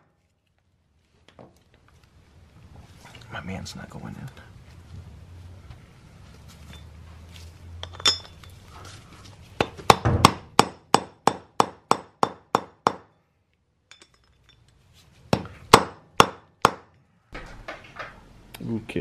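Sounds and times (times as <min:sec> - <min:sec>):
mallet striking metal tool: 0:09.6 - 0:13.1.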